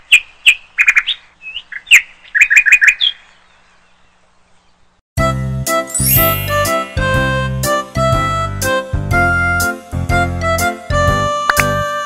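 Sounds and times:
small bird chirping: 0:00.0 - 0:05.0.

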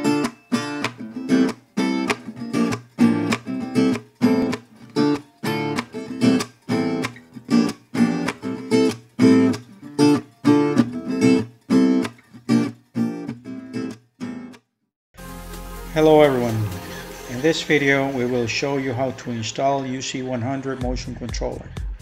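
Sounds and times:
strummed acoustic guitar chords: 0:00.0 - 0:14.6.

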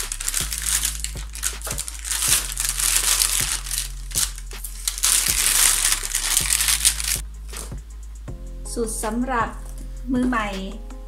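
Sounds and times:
baking paper crinkling: 0:00.0 - 0:07.7.

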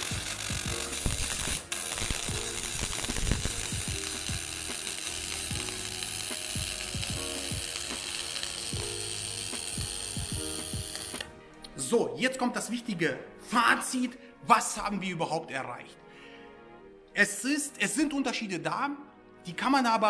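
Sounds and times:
welding arc crackling buzz: 0:00.0 - 0:11.3.

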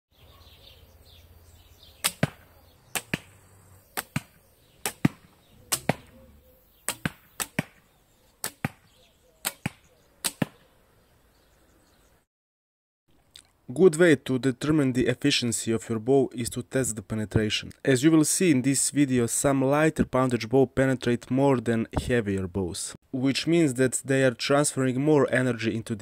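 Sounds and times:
bowstring released: 0:02.0 - 0:06.2, 0:06.8 - 0:07.8, 0:08.4 - 0:10.7
arrow striking: 0:02.0 - 0:10.7.

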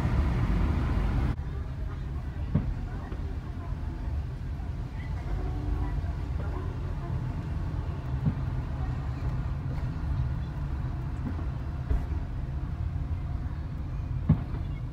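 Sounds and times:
car cabin road rumble: 0:00.0 - 0:14.9.

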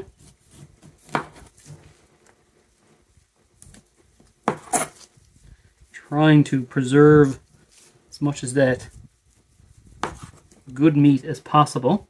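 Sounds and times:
knife slicing scrape: 0:04.5 - 0:05.1.

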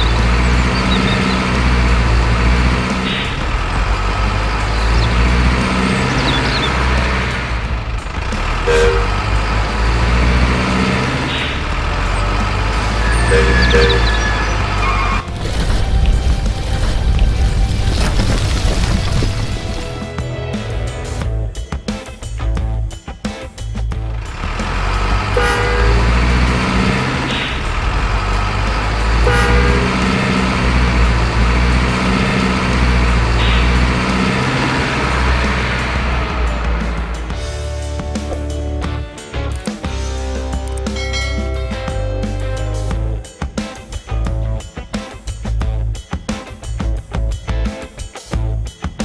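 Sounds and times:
truck engine droning: 0:00.0 - 0:23.0, 0:23.6 - 0:43.4
truck horn toots: 0:08.3 - 0:17.2, 0:24.4 - 0:36.7
two-note tone: 0:12.8 - 0:18.2.

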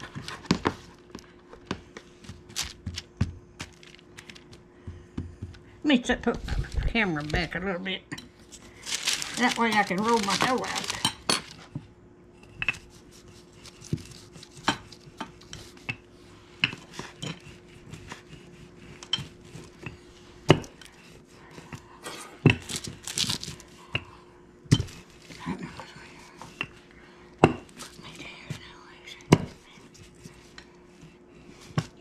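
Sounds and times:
faint steady hum: 0:00.0 - 0:32.0
wax paper crinkling: 0:02.3 - 0:04.6, 0:06.6 - 0:07.6, 0:08.5 - 0:11.7, 0:22.6 - 0:23.7.

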